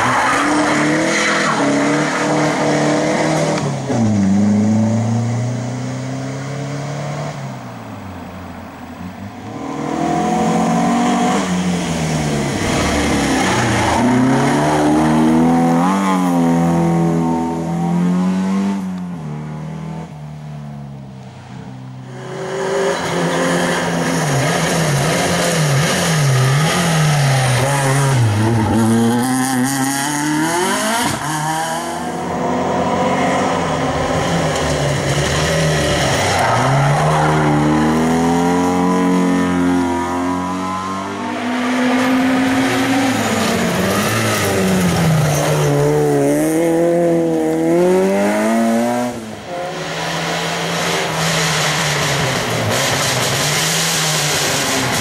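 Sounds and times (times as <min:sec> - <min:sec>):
rally car engine revving: 0:09.4 - 0:20.2, 0:22.1 - 0:55.0.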